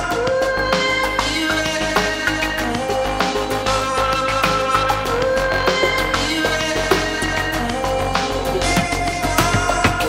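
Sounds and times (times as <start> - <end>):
instrumental music with beat: 0.0 - 10.0.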